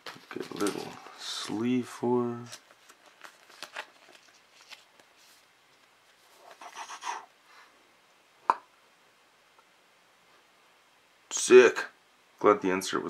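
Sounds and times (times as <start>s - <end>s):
plastic sleeve rustling: 0.0s - 6.8s.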